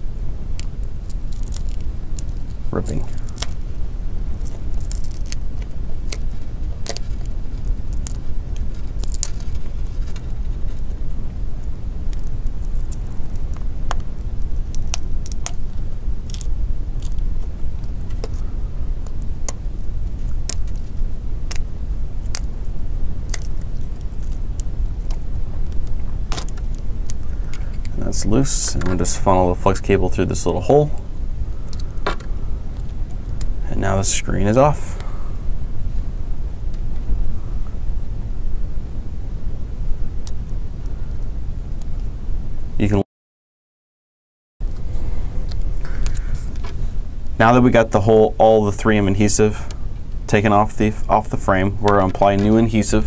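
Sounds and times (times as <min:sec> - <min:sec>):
touchscreen peeling crackles: 0:00.0 - 0:35.2
steady low hum: 0:00.0 - 0:43.0, 0:44.6 - 0:53.0.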